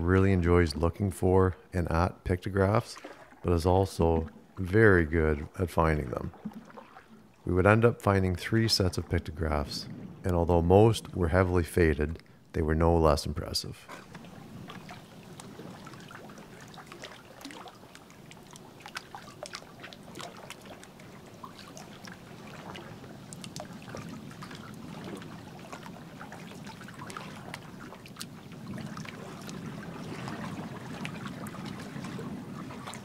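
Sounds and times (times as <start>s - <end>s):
water lapping against hull: 0.0s - 33.0s
water dripping off paddle: 2.9s - 4.7s, 6.2s - 7.5s, 13.9s - 33.0s.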